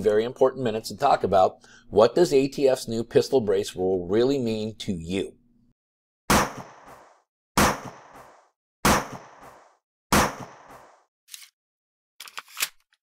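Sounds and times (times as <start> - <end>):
gunshots: 6.3 - 11.0.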